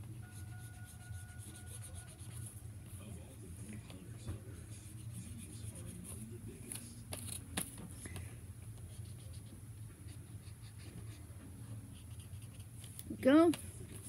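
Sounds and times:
marker scratching on paper: 0.3s - 2.6s, 4.6s - 6.2s, 8.8s - 11.3s, 11.9s - 13.0s.

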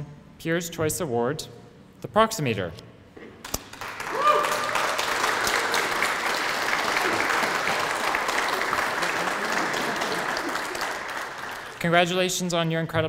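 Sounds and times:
audience applauding: 3.6s - 12.1s.

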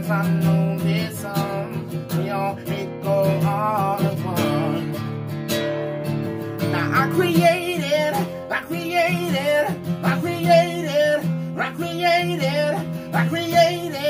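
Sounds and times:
acoustic guitar strumming: 0.0s - 14.0s
men singing wordless line: 6.7s - 14.0s.

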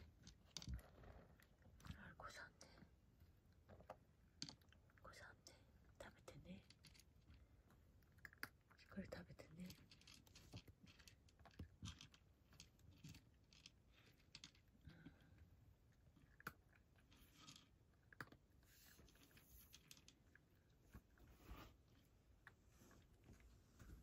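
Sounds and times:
cat crunching dry kibble: 5.8s - 20.8s.

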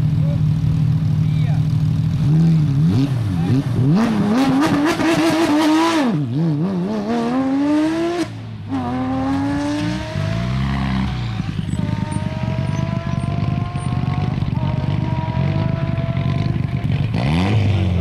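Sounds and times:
rally car idling unevenly: 0.0s - 3.8s, 10.0s - 18.0s
rally car engine revving and accelerating: 2.1s - 18.0s.

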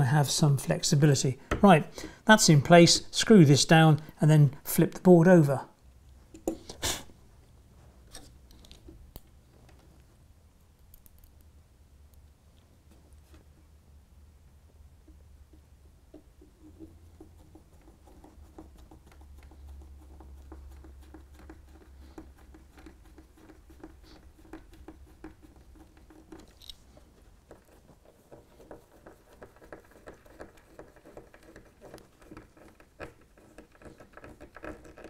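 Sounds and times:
screwdriver scratching and squeaking: 16.4s - 35.0s.

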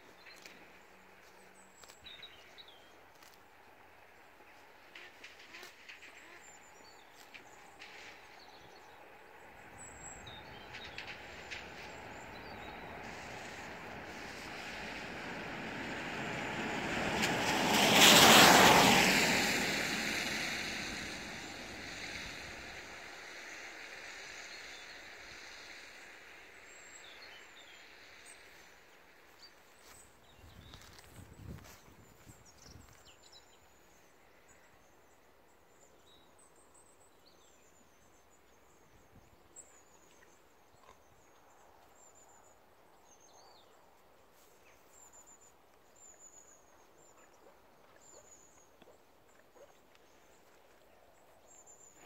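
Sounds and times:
vehicle passing by: 9.4s - 26.4s.

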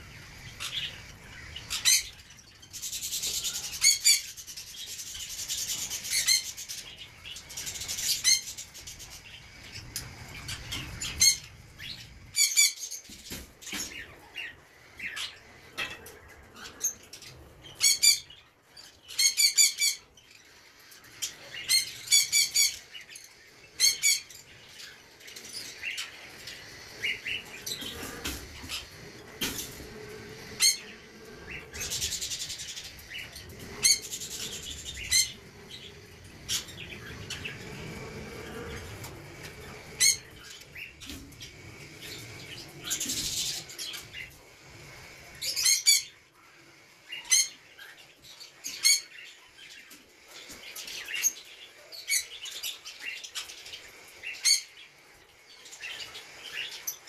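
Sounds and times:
parrots chirping shrilly: 23.8s - 37.9s.

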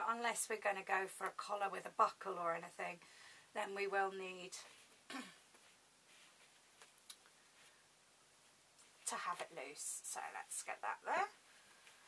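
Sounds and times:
faint sharp clicks: 6.8s - 7.4s.

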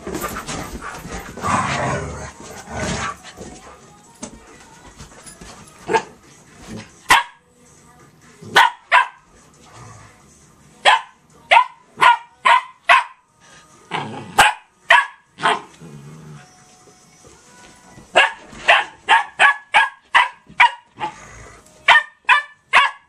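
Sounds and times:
dog barking: 7.1s - 7.4s, 8.5s - 9.2s, 10.8s - 13.2s, 14.4s - 15.7s, 18.2s - 21.1s, 21.9s - 23.0s.

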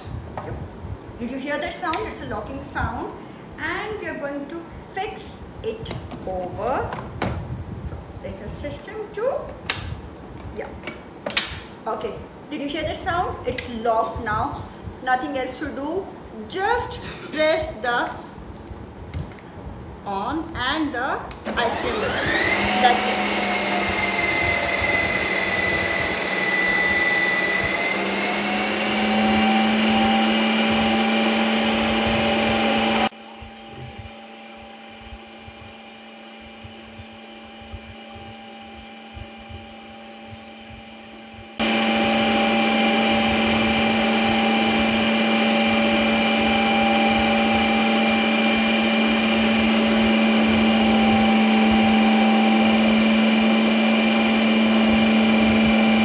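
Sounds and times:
ice cream maker motor whining: 21.5s - 56.0s.

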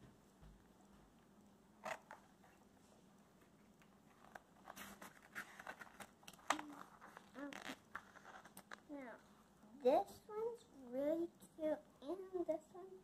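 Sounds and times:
book pages turning: 1.8s - 2.6s, 4.1s - 8.9s.

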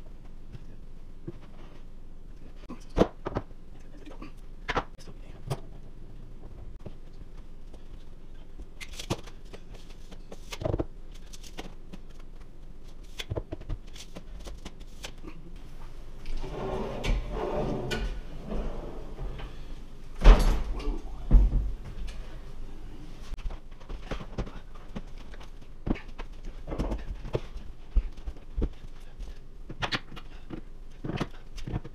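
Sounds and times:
wooden cabinets clicking and knocking: 16.3s - 22.3s.

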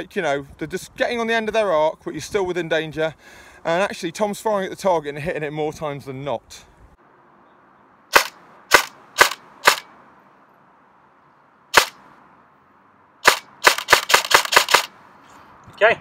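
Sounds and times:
airsoft gun firing single shots: 8.1s - 9.9s, 11.7s - 12.0s, 13.2s - 14.9s.

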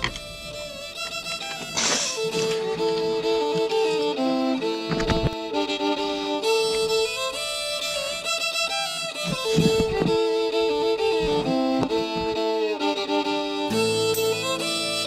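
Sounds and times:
fiddle melody: 0.0s - 15.0s
sustained background notes: 0.0s - 15.0s.

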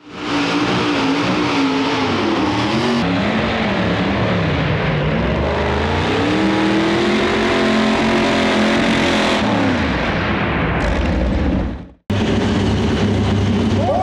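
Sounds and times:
truck engine running hard: 0.0s - 10.0s, 10.8s - 14.0s.

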